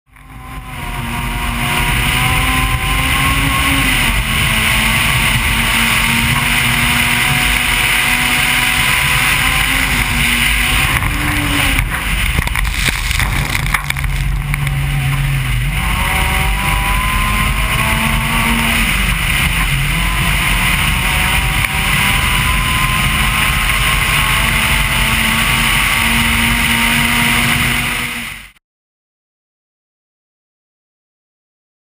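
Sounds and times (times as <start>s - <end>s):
rally car engine revving: 0.1s - 28.6s
wind: 0.1s - 28.6s.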